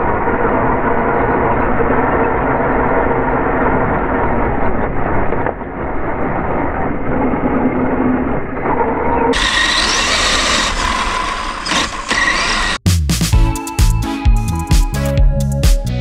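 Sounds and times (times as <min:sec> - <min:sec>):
remote-control car motor and wheels: 0:09.3 - 0:12.8.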